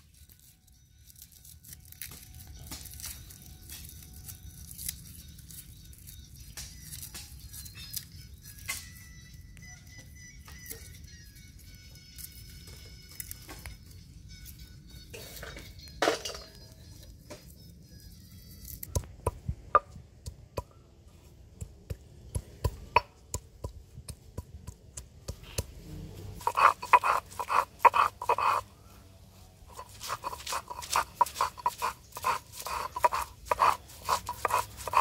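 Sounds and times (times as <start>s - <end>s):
faint background music: 0.0s - 23.0s
stone grinding strokes: 25.6s - 28.8s, 29.5s - 35.0s.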